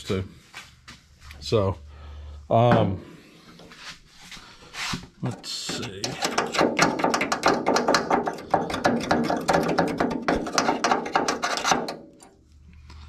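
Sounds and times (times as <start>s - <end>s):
hand tool scraping sheet metal: 4.8s - 12.3s.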